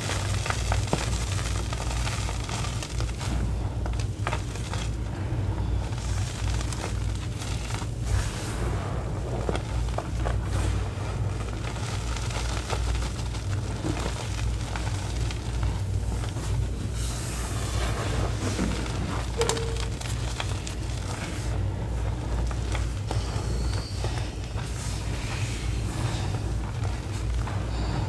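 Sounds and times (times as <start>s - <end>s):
powder crunching under hand: 0.0s - 28.0s
steady low hum: 0.0s - 28.0s.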